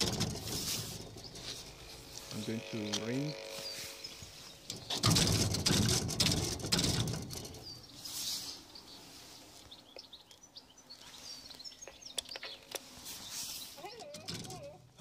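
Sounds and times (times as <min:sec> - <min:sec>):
birds chirping faintly: 0:00.0 - 0:15.0
door phone static hiss: 0:01.5 - 0:05.1.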